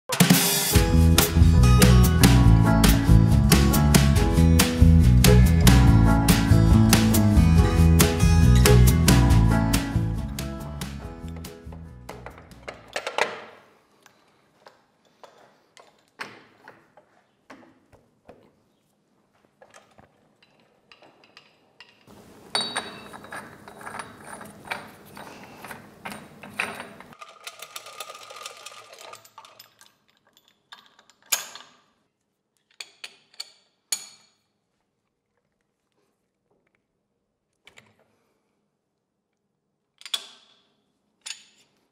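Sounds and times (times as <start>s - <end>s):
metal clicks and clinks: 20.4s - 31.9s
mechanical rattling and ratcheting: 26.0s - 31.7s.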